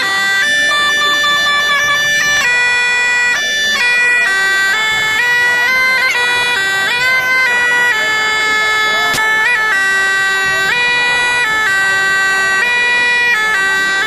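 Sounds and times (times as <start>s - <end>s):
bagpipe playing a tune: 0.0s - 14.0s.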